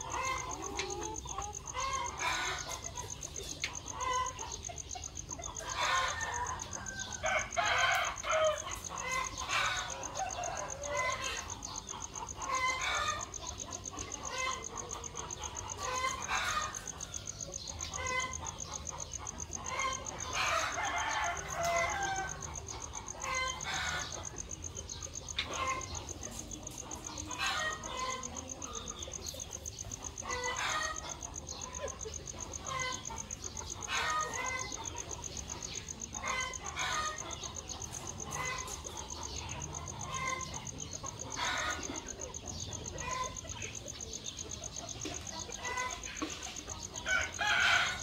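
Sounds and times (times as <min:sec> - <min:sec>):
chickens clucking: 0:00.0 - 0:48.0
rooster crowing: 0:05.6 - 0:13.6, 0:14.3 - 0:24.5, 0:47.0 - 0:48.0.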